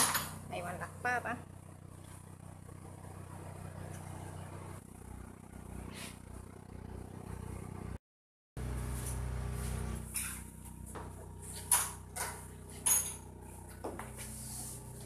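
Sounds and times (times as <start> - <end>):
low engine-like drone: 0.2 - 8.0.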